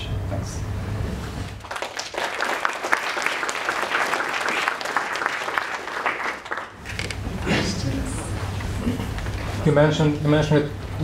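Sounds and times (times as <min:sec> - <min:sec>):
audience applauding: 0:01.6 - 0:07.2.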